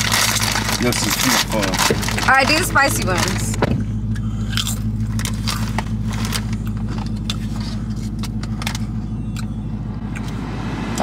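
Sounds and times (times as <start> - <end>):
chips crunching: 0.0 - 3.4, 4.4 - 7.5
car cabin hum: 0.0 - 11.0.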